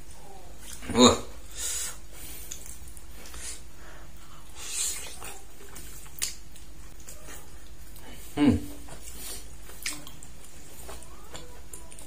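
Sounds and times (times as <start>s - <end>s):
quiet chewing: 2.1s - 12.0s
soft wet slurp: 4.4s - 12.0s.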